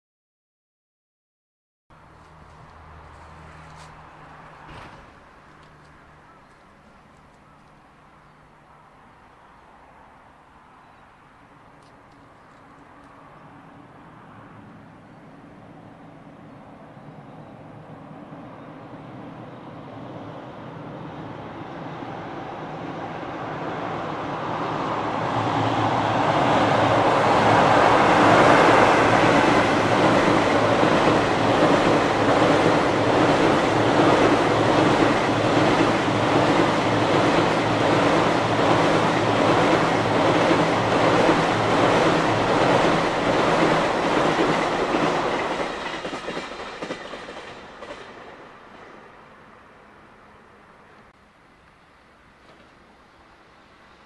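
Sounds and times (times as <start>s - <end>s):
train rumble: 2.0s - 9.4s, 11.4s - 51.2s
wheels clacking over rail joints: 2.2s - 7.8s, 28.3s - 48.9s.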